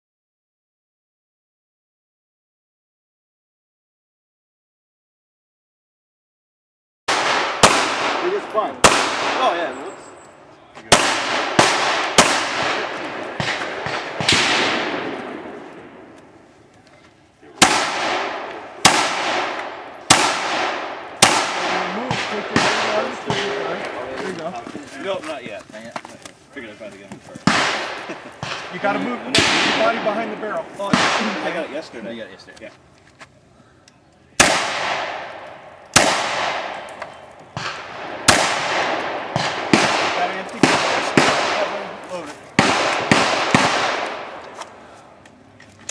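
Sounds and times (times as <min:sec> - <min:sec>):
pistol shots with ringing echo: 0:07.1 - 0:10.2, 0:10.9 - 0:16.2, 0:17.6 - 0:24.1, 0:27.4 - 0:31.9, 0:34.4 - 0:44.5.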